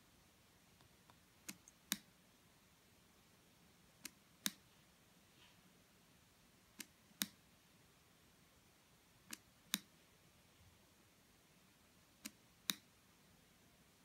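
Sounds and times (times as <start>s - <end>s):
sharp clicks in pairs: 0.8s - 2.1s, 9.3s - 9.9s.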